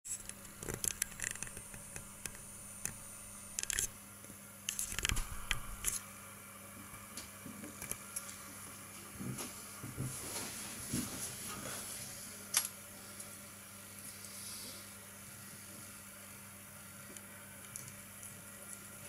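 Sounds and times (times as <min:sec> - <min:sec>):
faint steady hum: 0:00.1 - 0:19.0.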